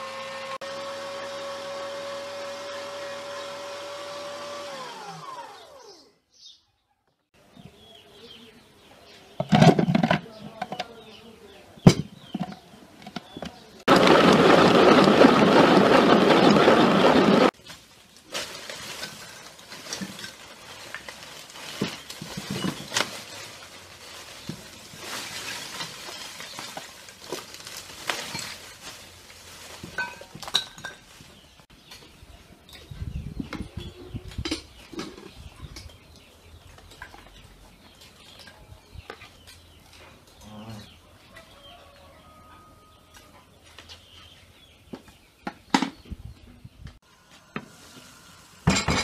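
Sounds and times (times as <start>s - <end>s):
dishes and utensils clinking: 30.0s - 31.1s.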